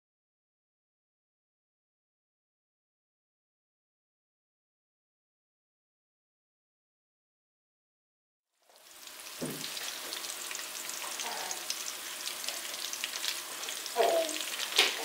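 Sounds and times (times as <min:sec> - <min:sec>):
food sizzling in frying pan: 0:08.6 - 0:15.0
soft knock: 0:09.4 - 0:09.7.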